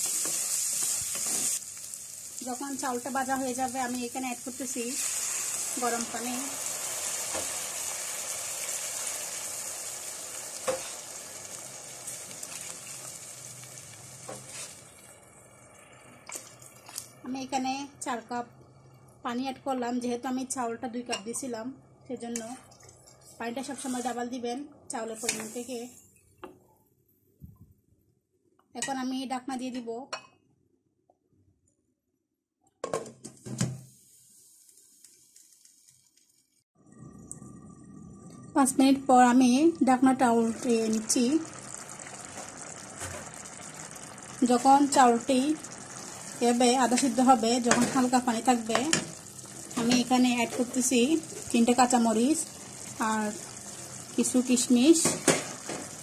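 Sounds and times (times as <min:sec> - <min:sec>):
rice sizzling in oil: 0:00.0 - 0:15.5, 0:23.2 - 0:24.3, 0:25.2 - 0:26.0, 0:33.6 - 0:36.6, 0:39.8 - 0:56.0
water pouring into pot: 0:00.1 - 0:17.1, 0:39.8 - 0:56.0.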